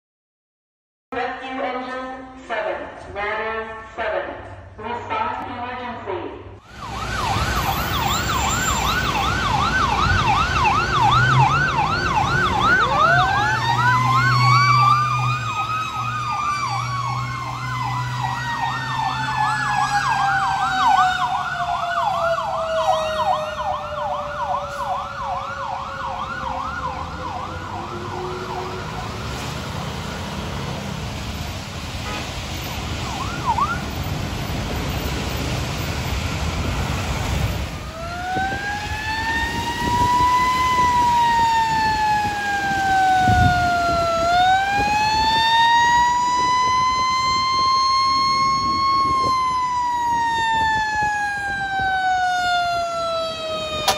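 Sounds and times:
passing road traffic: 6.4s - 53.9s
electronic siren yelping: 6.6s - 29.3s, 33.0s - 34.0s, 37.8s - 53.9s
mechanical siren wailing: 6.6s - 29.4s, 37.7s - 53.9s.

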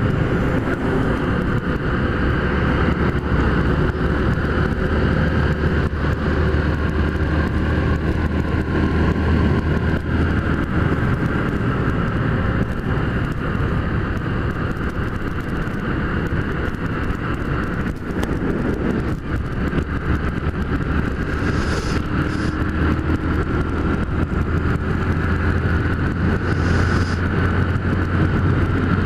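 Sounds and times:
motorcycle engine cruising: 0.0s - 29.0s
wind noise on microphone: 0.0s - 29.0s
brief hissing rushes: 21.4s - 22.6s, 26.4s - 27.2s.

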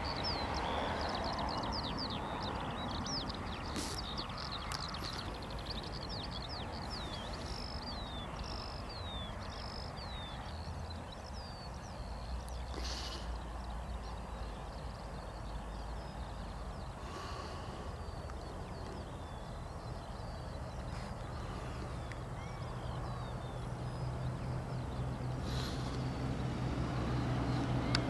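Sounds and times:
small birds chirping: 0.0s - 28.0s
low engine drone: 12.3s - 28.0s.

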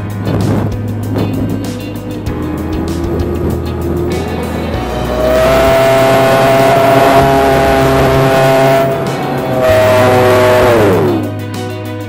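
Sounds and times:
model plane motor whine: 2.9s - 11.3s.

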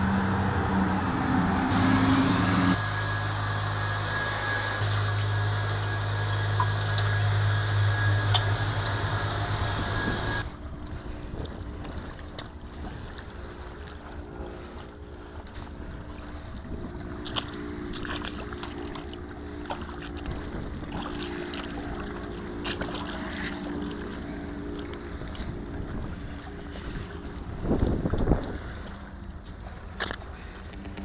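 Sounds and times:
low hum: 0.0s - 31.0s
boots splashing through water: 11.1s - 31.0s
wind on microphone: 20.2s - 21.2s, 25.2s - 29.1s.

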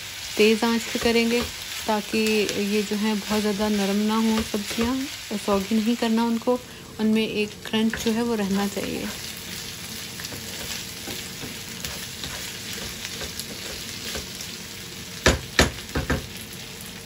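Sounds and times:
food sizzling in hot oil: 0.0s - 17.0s
spatula striking pan: 15.2s - 16.3s.

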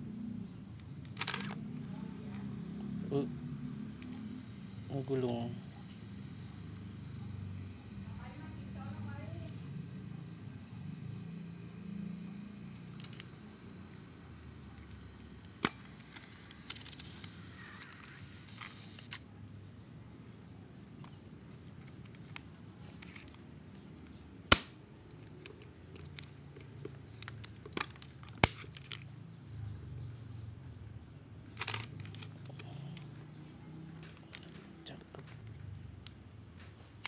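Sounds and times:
camera clicks and snaps: 0.7s - 1.6s, 13.0s - 13.3s, 15.6s - 19.3s, 31.5s - 32.6s.

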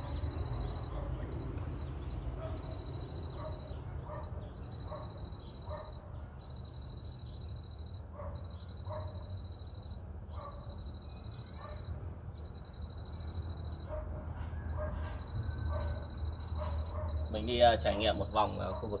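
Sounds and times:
dog barking: 0.0s - 1.3s, 2.4s - 6.1s, 8.1s - 9.3s, 10.3s - 10.8s, 11.5s - 11.9s, 13.8s - 17.3s, 18.4s - 19.0s
high insect trill: 0.0s - 14.0s, 14.6s - 19.0s.

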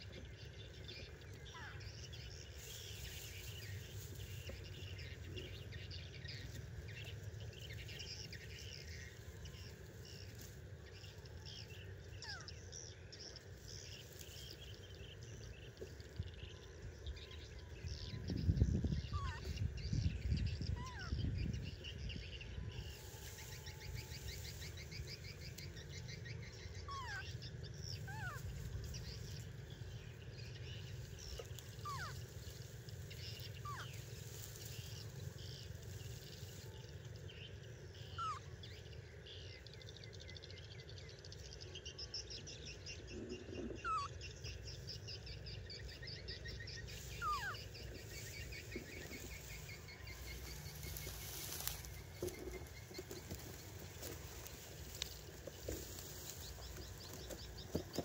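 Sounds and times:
steady low rumble: 0.0s - 57.7s.

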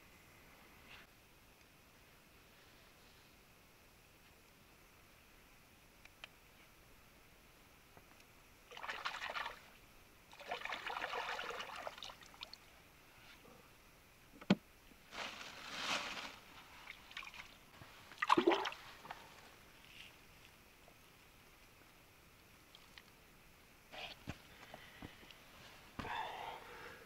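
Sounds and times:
water splash: 8.7s - 9.6s, 10.3s - 12.5s, 18.1s - 18.9s
water sloshing and trickling: 8.7s - 9.7s, 10.3s - 12.7s, 16.8s - 19.3s.

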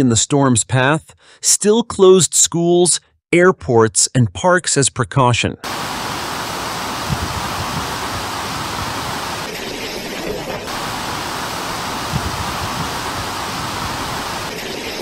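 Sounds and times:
wind and driving rain: 5.6s - 15.0s
wind buffeting microphone: 6.9s - 9.5s, 10.7s - 14.5s.

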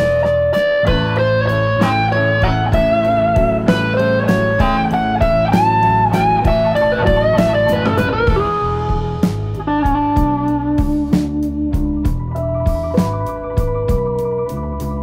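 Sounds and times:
electric guitar melody over beat: 0.0s - 15.0s.

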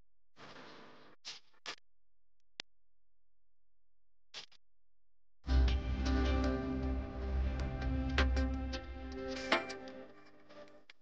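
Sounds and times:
instrumental background music: 5.5s - 10.9s.

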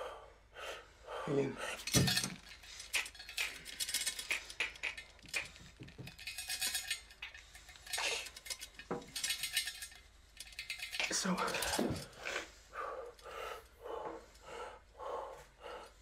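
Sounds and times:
low breathy sounds: 0.0s - 16.0s
metallic clinks and rattles: 1.7s - 13.7s.

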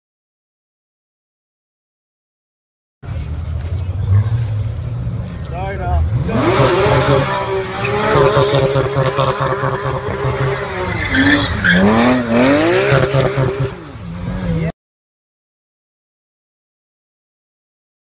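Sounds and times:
car engine revving hard: 6.1s - 14.7s
tyres squealing and skidding: 6.2s - 14.7s.

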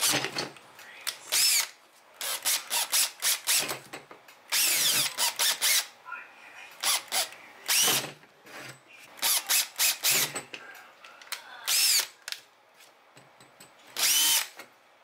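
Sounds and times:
cordless drill boring plastic: 1.3s - 3.7s, 4.5s - 5.9s, 6.8s - 8.0s, 11.7s - 12.1s, 14.0s - 14.6s.

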